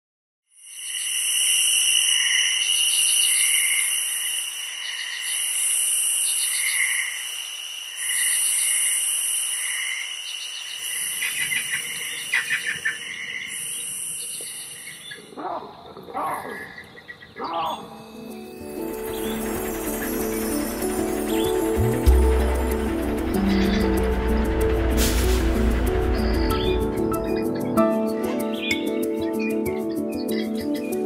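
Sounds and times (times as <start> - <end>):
high insect buzz: 0.5 - 15.2
insects trilling: 0.5 - 27.8.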